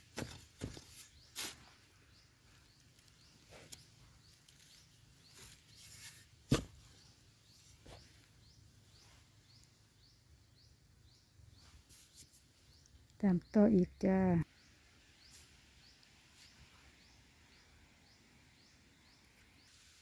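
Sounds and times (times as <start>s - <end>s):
spade digging sandy soil: 0.1s - 1.9s.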